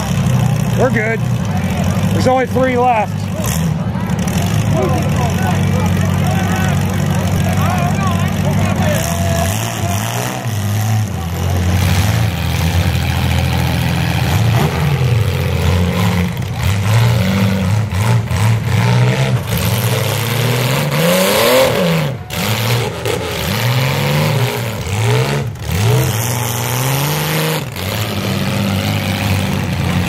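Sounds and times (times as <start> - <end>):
car engines revving: 0.0 - 30.0.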